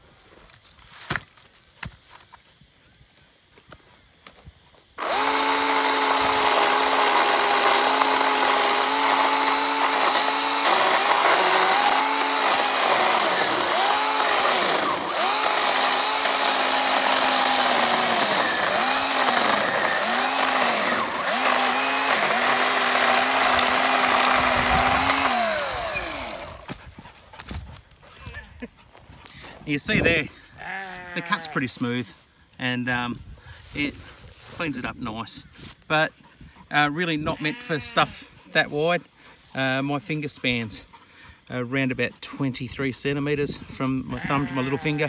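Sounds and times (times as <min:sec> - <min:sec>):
cordless chainsaw cutting log: 0:05.0 - 0:26.8.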